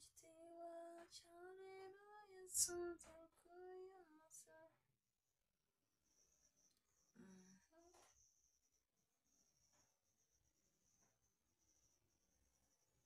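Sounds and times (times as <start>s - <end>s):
person singing softly: 0.0s - 4.8s.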